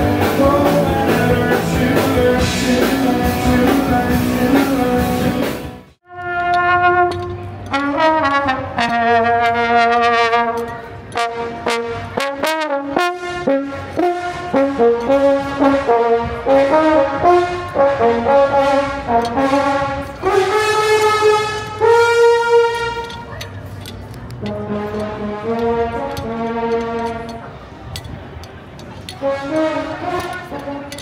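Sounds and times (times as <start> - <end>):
solo trombone melody: 6.0 - 23.2, 24.4 - 27.3, 29.2 - 31.0.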